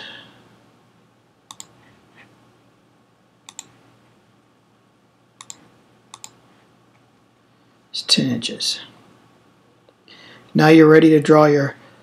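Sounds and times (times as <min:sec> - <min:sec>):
computer mouse clicks: 0:01.5 - 0:01.8, 0:03.4 - 0:03.8, 0:05.4 - 0:06.4.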